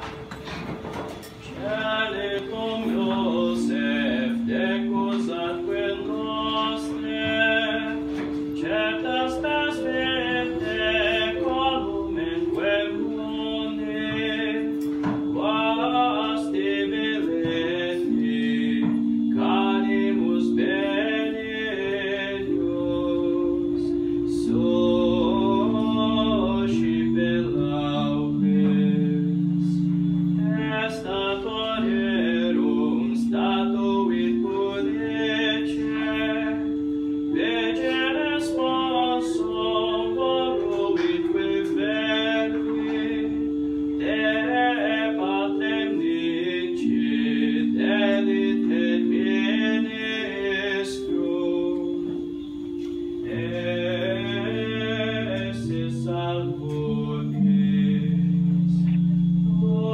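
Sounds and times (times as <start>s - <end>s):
keyboard organ chords: 0.0s - 59.9s
man singing a hymn: 0.9s - 59.9s.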